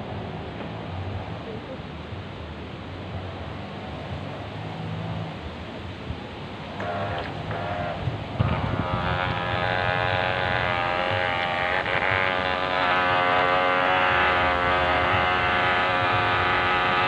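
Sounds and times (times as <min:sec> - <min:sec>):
water churning from propeller: 0:00.0 - 0:17.0
toy boat electric motor whining: 0:06.8 - 0:17.0.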